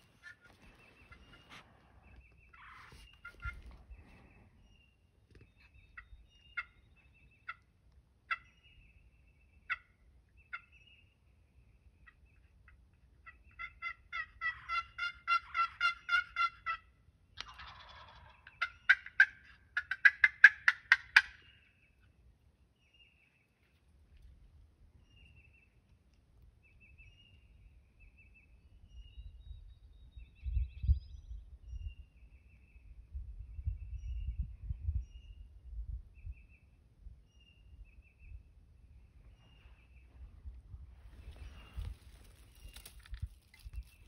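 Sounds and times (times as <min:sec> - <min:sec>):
turkey rattling gobble: 0:00.0 - 0:01.8, 0:02.5 - 0:03.8, 0:06.0 - 0:06.8, 0:08.3 - 0:08.5, 0:09.7 - 0:09.9, 0:12.6 - 0:21.7
turkey yelps: 0:00.0 - 0:01.8, 0:02.5 - 0:03.8, 0:06.0 - 0:06.8, 0:09.7 - 0:09.9, 0:12.0 - 0:21.6
turkey clucks: 0:00.0 - 0:04.2, 0:05.6 - 0:06.8, 0:07.4 - 0:08.6, 0:09.7 - 0:09.9, 0:12.0 - 0:22.1.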